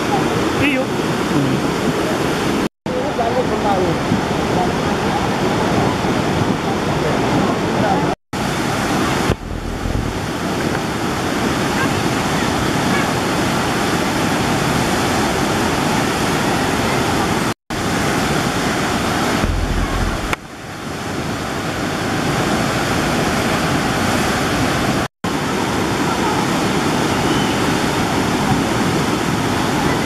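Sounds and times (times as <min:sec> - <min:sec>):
floodwater rushing roar: 0:00.0 - 0:30.0
short low rumble: 0:09.3 - 0:10.3, 0:19.4 - 0:20.4.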